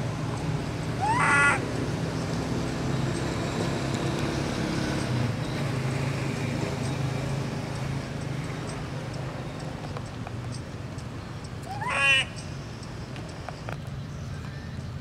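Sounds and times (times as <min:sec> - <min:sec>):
baby monkey shrill cry: 0:01.0 - 0:01.6, 0:11.7 - 0:12.3.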